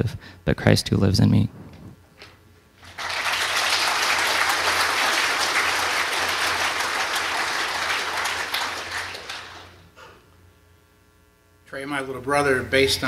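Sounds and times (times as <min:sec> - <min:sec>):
crowd applauding: 0:02.8 - 0:09.9.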